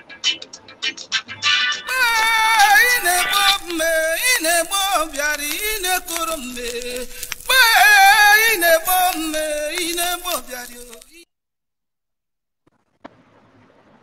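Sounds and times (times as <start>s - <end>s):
person singing: 1.4s - 11.2s.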